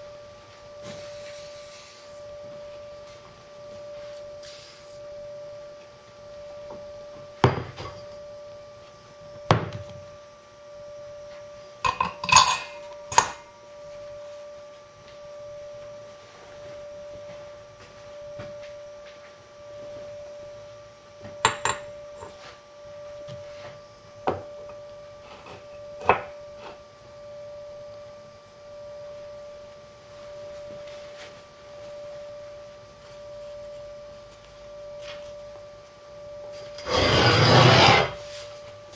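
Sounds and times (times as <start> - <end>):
gas torch running: 0.8 - 3.2, 4.0 - 5.2, 36.6 - 38.4
metal clinks: 11.8 - 13.4.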